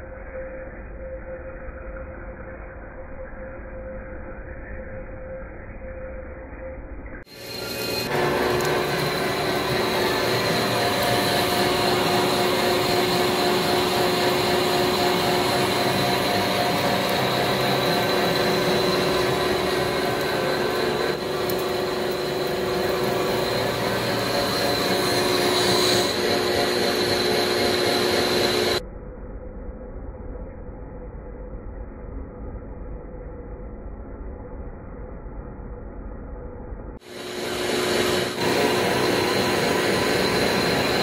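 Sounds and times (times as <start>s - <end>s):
thin high whine: 0.0s - 28.9s, 37.0s - 41.0s
lathe cutting steel: 7.3s - 28.8s, 37.0s - 41.0s.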